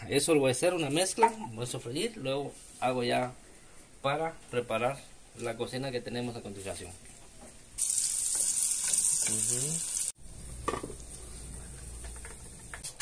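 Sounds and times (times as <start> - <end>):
food sizzling in hot oil: 7.8 - 10.3.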